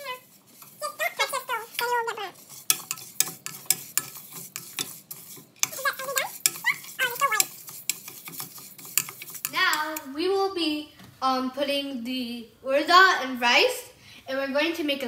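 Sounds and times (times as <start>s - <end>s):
spatula scraping grains in metal pan: 0.0s - 10.2s.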